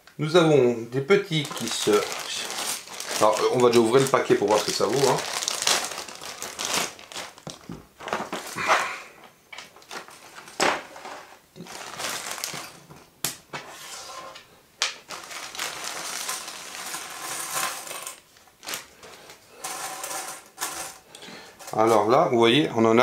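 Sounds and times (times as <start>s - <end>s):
plastic bag crinkling: 1.3s - 8.9s, 9.7s - 12.9s, 15.0s - 21.0s
puzzle pieces clattering on wooden table: 15.7s - 18.2s, 19.6s - 21.0s.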